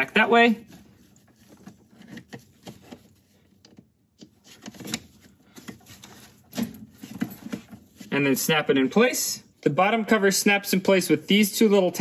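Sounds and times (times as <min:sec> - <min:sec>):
plastic rubbing and scraping: 0:00.1 - 0:08.4.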